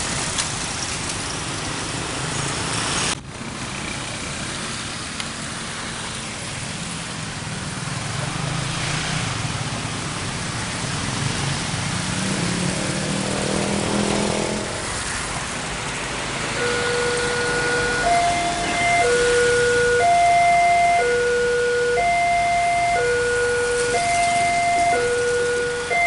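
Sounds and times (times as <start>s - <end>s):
road traffic: 0.0s - 26.0s
motorcycle engines passing: 6.7s - 26.0s
level crossing alarm beeping: 16.6s - 26.0s.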